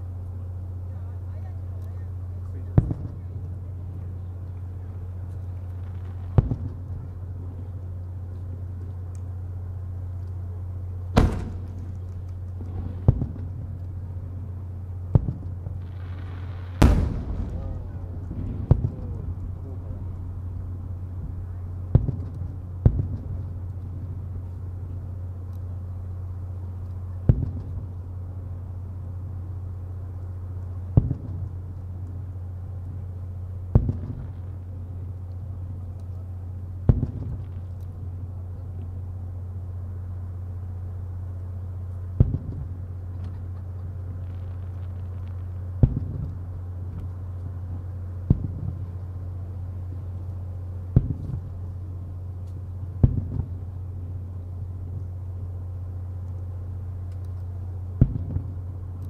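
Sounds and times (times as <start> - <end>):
steady low hum: 0.0 - 59.0
fireworks booming with echo: 2.6 - 7.8, 11.1 - 25.0, 27.2 - 27.9, 30.9 - 31.6, 33.6 - 35.9, 36.8 - 38.3, 42.1 - 52.0, 52.9 - 53.9, 58.0 - 58.8.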